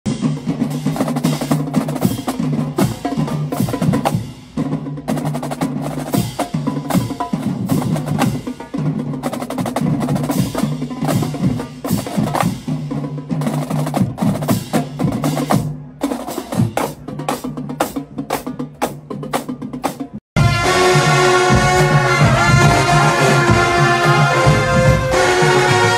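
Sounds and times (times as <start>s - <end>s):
marching snare drums: 0.1s - 25.9s.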